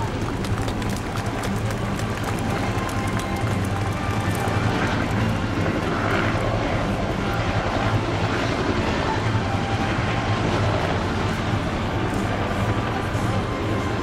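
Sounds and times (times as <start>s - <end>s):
helicopters flying low: 0.0s - 14.0s.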